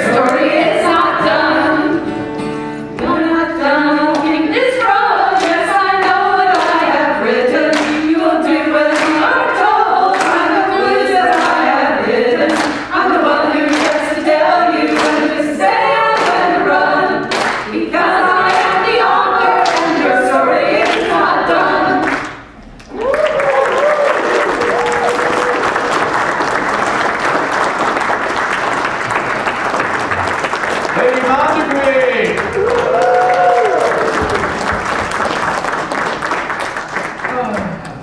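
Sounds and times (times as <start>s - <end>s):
female vocal group singing: 0.0s - 2.2s, 3.0s - 22.5s.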